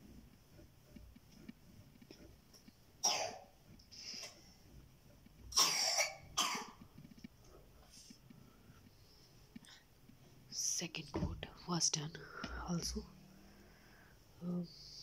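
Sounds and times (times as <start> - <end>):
person coughing: 3.0 - 3.5, 5.5 - 6.8.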